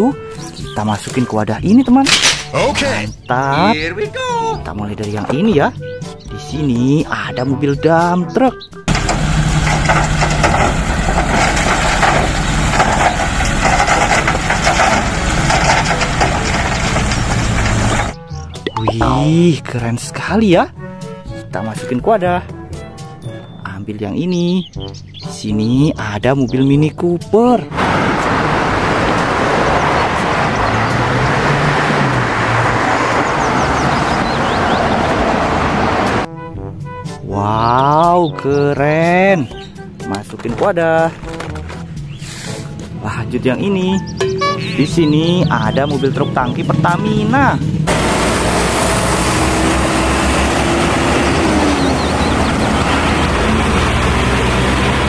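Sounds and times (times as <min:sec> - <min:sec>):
tyre and road noise: 0:00.0 - 0:04.6, 0:08.9 - 0:19.0, 0:27.6 - 0:36.3, 0:39.4 - 0:55.0
rocks and soil clattering: 0:02.0 - 0:03.0, 0:08.9 - 0:19.1, 0:40.1 - 0:42.7
diesel engine running: 0:08.9 - 0:18.2, 0:27.7 - 0:36.3, 0:44.1 - 0:55.0.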